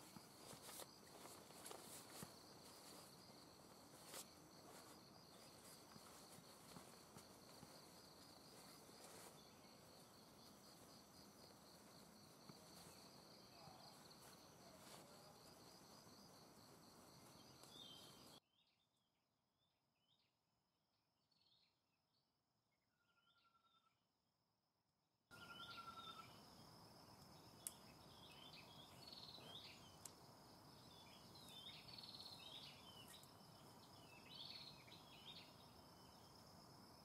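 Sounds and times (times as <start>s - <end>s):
tent fabric rustling: 0.0s - 15.7s
high insect trill: 0.0s - 18.4s, 25.3s - 37.0s.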